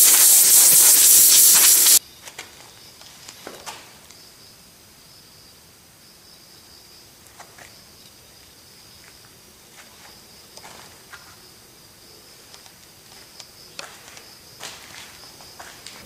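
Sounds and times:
light scuffs and clicks: 9.0s - 11.4s, 12.5s - 16.0s.

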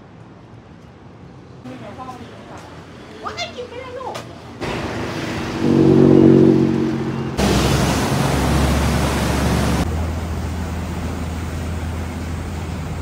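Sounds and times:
boat engine droning: 4.6s - 9.8s
propeller churning water: 4.6s - 13.0s.

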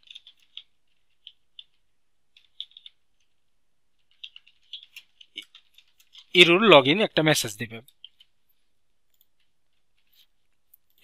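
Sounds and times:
keyboard typing clicks: 0.0s - 3.3s, 4.0s - 6.3s.

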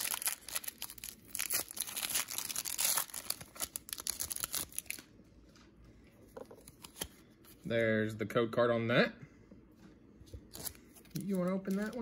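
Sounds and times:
foil wrapper tearing and crinkling: 0.0s - 5.1s.

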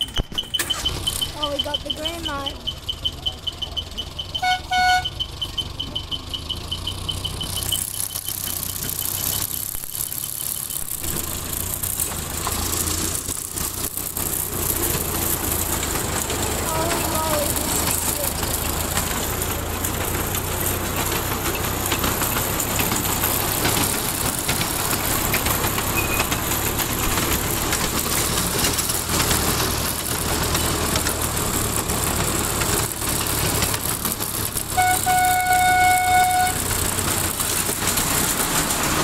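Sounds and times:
miniature train rumbling on track: 0.0s - 39.0s
locomotive whistle blast: 4.3s - 5.3s, 34.7s - 36.7s.

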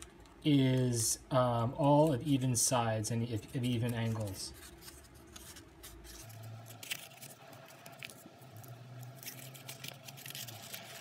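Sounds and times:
folded paper rustling and crackling: 3.4s - 11.0s.

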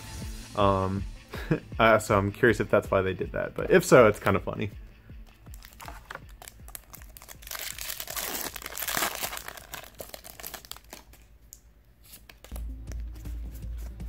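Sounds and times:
foil wrapper tearing and crumpling: 5.5s - 11.3s.

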